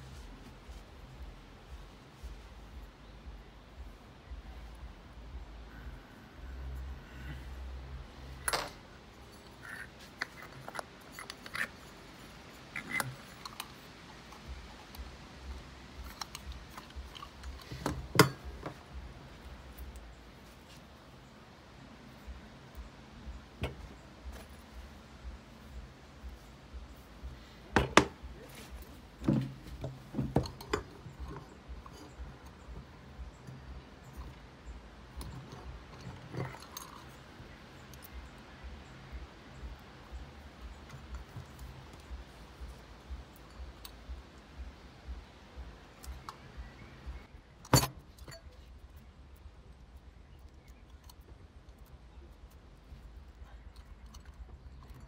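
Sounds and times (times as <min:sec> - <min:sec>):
metallic clinks and rattles: 0:06.8 - 0:20.7, 0:27.7 - 0:49.0, 0:50.4 - 0:55.0
tools set down on plastic table: 0:47.7 - 0:48.0.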